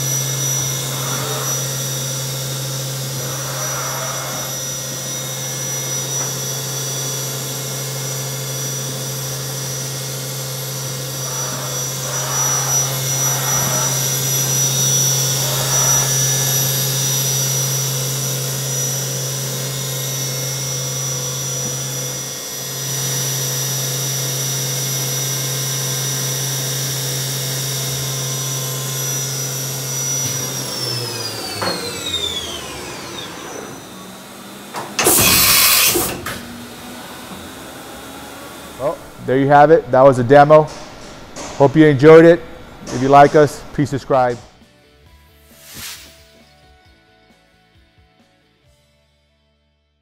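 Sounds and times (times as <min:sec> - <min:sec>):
machine spindle whine: 0:00.0 - 0:44.6
burst of hiss: 0:35.0 - 0:36.1, 0:45.4 - 0:46.5.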